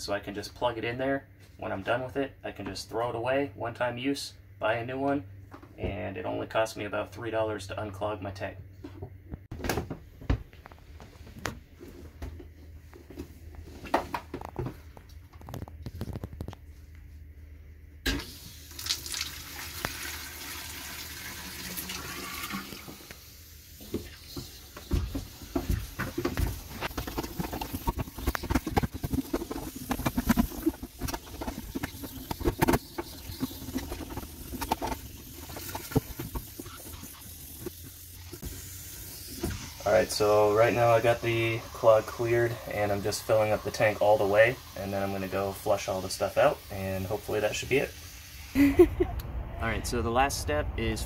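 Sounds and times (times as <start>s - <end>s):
water rushing into toilet: 18.1s - 23.2s, 38.9s - 48.6s.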